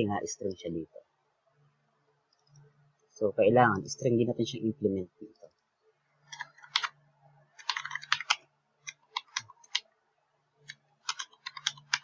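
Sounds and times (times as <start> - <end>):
keyboard typing: 6.2 - 9.9, 10.6 - 12.0.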